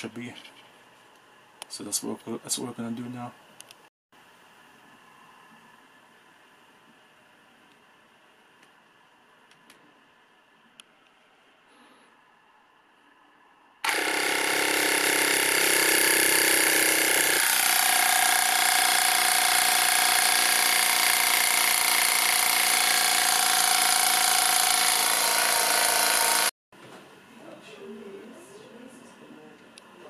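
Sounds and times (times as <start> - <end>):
electric air compressor running: 13.8 - 26.5.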